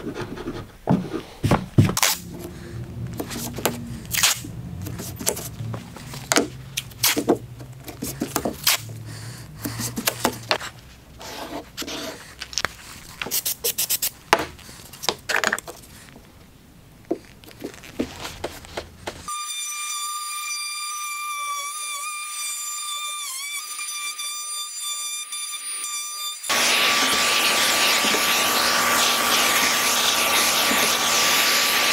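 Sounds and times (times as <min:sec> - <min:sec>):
tape ripping: 0:01.9 - 0:02.3, 0:03.2 - 0:08.9
router whining: 0:26.4 - 0:31.9.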